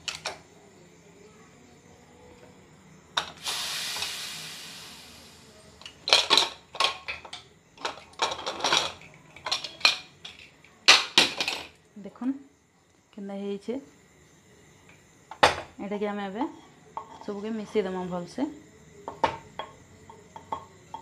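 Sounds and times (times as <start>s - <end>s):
steam hissing: 3.2s - 5.9s.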